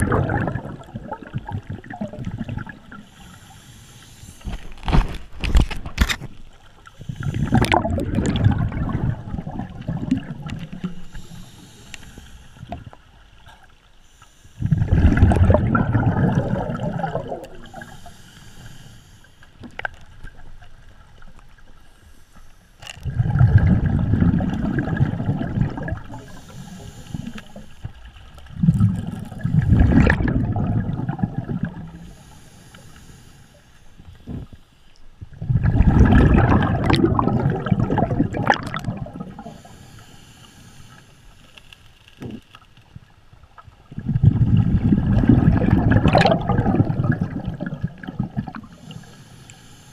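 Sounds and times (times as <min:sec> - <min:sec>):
underwater breathing: 0:00.0 - 0:05.8, 0:06.6 - 0:20.0, 0:21.8 - 0:42.5, 0:44.0 - 0:49.9
scuba regulator bubbles underwater: 0:00.0 - 0:13.7, 0:14.5 - 0:18.8, 0:23.0 - 0:33.1, 0:35.2 - 0:40.1, 0:43.5 - 0:49.7.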